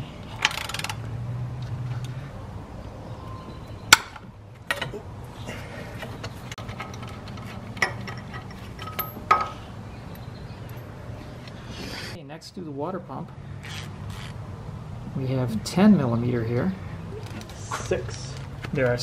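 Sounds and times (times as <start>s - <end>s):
metal tools clinking: 6.0s - 9.6s.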